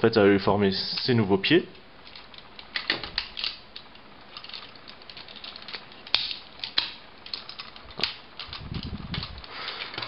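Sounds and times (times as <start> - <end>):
plastic toy parts clicking: 2.0 - 10.0.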